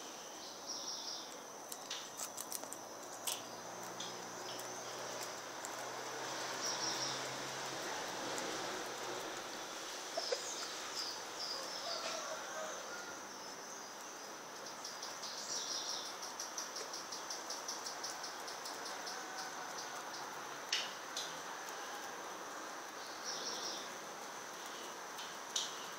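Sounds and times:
high insect buzz: 0.0s - 25.9s
light rapid ticks: 1.3s - 11.9s, 13.4s - 25.9s
bird chirps: 10.1s - 12.0s.

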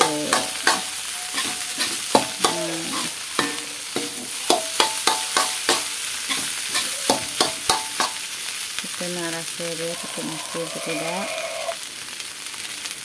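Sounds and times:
metal spatula scraping wok: 0.0s - 8.2s
frying sizzle: 0.0s - 13.0s.

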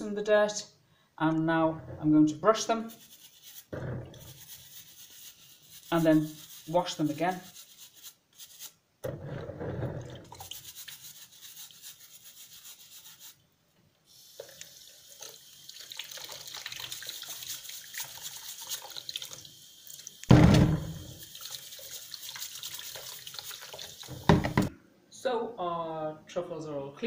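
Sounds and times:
stiff brush scrubbing: 2.0s - 8.8s, 10.3s - 13.4s, 17.1s - 19.0s, 21.1s - 23.6s
loud thump: 3.7s - 4.2s, 20.3s - 21.1s
tap running water: 3.7s - 4.5s, 14.2s - 24.7s.

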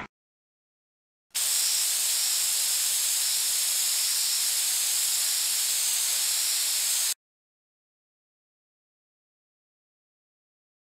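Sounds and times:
aerosol spray hissing: 1.4s - 7.2s.

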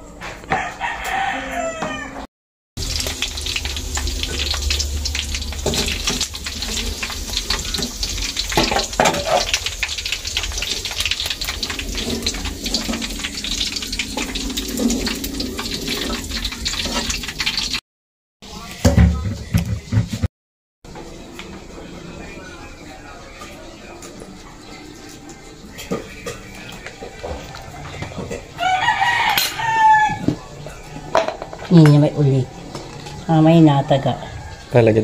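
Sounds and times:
rooster crowing: 0.4s - 2.3s, 27.3s - 30.9s, 32.4s - 35.0s
pork sizzling in wok: 2.8s - 17.8s, 20.9s - 34.8s.

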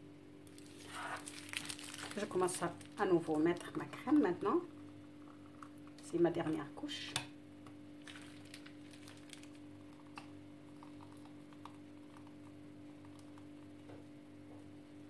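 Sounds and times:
faint steady hum: 0.0s - 15.0s
cream squeezed from piping bag: 0.5s - 3.0s.

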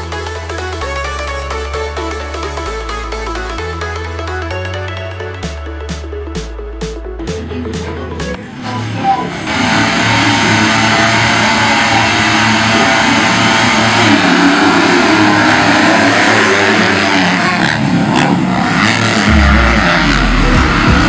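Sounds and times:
motocross bikes revving: 8.4s - 21.0s.

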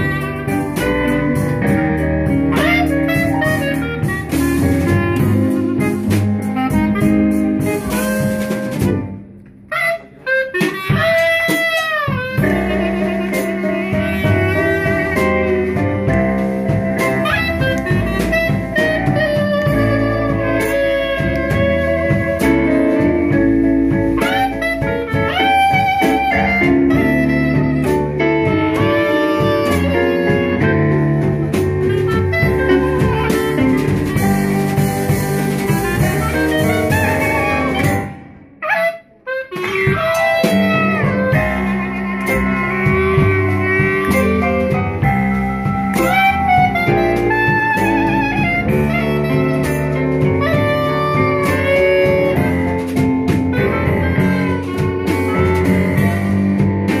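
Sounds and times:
drum and cymbal strikes: 0.0s - 9.1s, 10.6s - 38.1s
clarinet melody: 0.0s - 57.0s
piano chords: 0.0s - 57.0s
small jazz band playing: 0.0s - 57.0s.

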